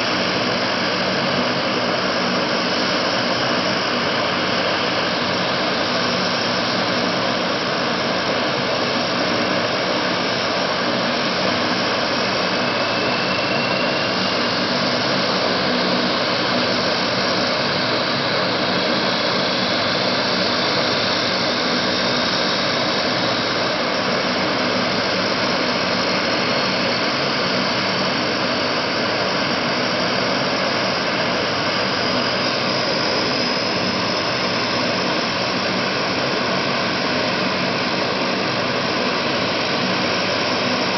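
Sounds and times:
faint high whine: 0:00.0 - 0:40.9
turboprop engines droning: 0:00.0 - 0:40.9.

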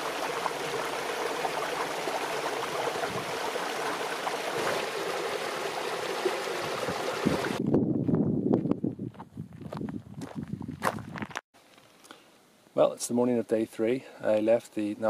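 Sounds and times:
stream rushing over rocks: 0:00.0 - 0:07.6
footsteps on gravel: 0:08.0 - 0:11.9.

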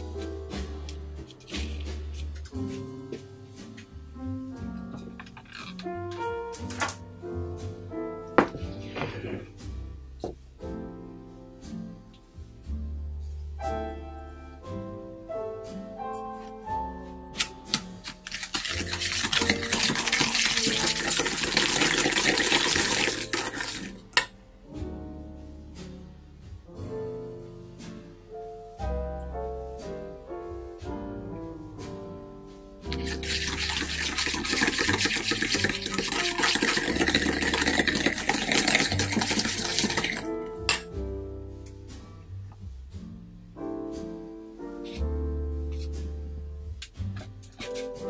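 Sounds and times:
mixer beaters scraping in a bowl: 0:18.0 - 0:24.0, 0:32.9 - 0:40.3.

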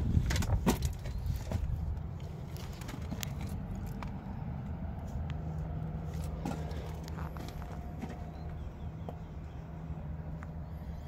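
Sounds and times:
wind rumble on microphone: 0:00.0 - 0:02.2.

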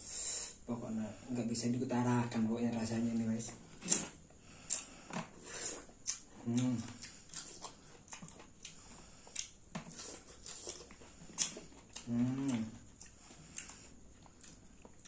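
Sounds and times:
wet chewing and mouth smacks: 0:05.7 - 0:15.0
person humming: 0:06.4 - 0:07.0, 0:12.0 - 0:12.8.

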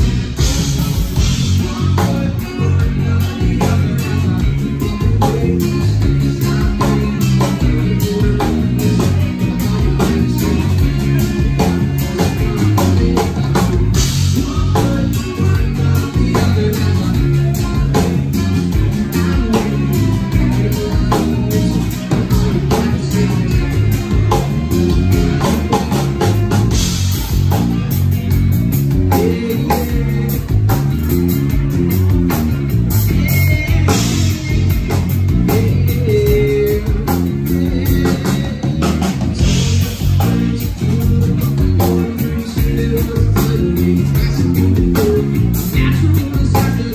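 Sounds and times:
bass guitar: 0:00.0 - 0:46.9
drum kit: 0:00.0 - 0:46.9
electric guitar: 0:00.0 - 0:46.9.

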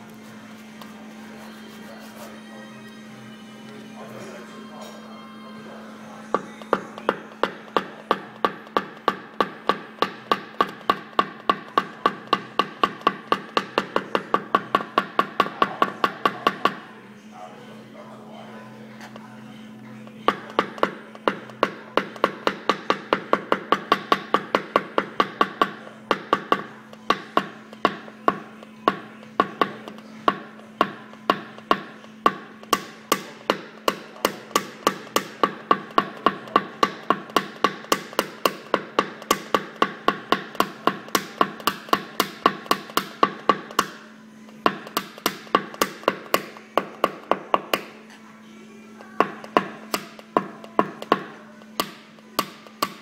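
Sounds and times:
hammer tapping metal punch: 0:06.3 - 0:16.8, 0:20.3 - 0:48.0, 0:49.0 - 0:53.0.

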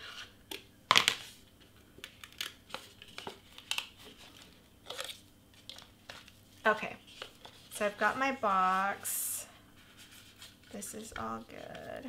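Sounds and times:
paper rustling and crinkling: 0:02.2 - 0:08.8, 0:09.8 - 0:12.0.

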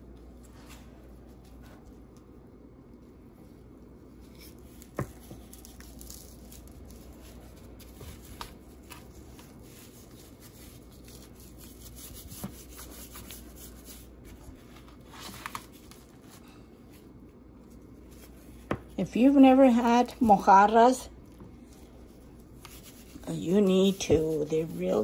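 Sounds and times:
gloved hands rubbing fish: 0:04.1 - 0:14.9, 0:21.6 - 0:25.0.

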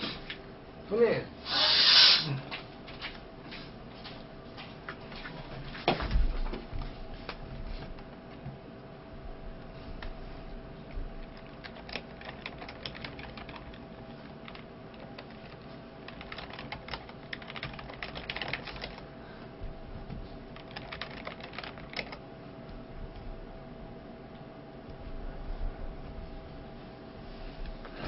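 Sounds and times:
faint steady hum: 0:00.0 - 0:28.0
computer keyboard typing: 0:11.2 - 0:19.1, 0:20.5 - 0:22.2.

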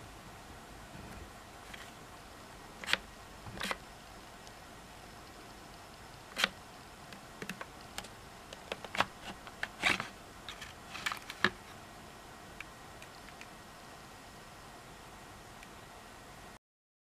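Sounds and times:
battery pack scraping on rails: 0:08.8 - 0:11.5.

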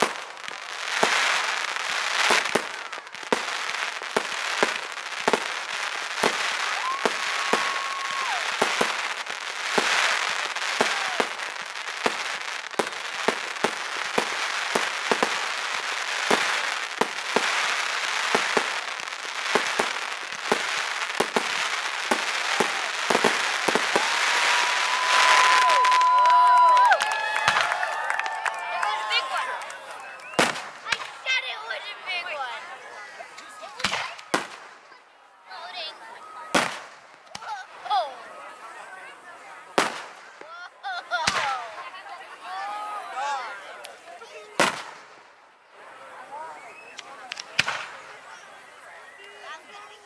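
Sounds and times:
fireworks bangs and crackling: 0:00.0 - 0:50.0.

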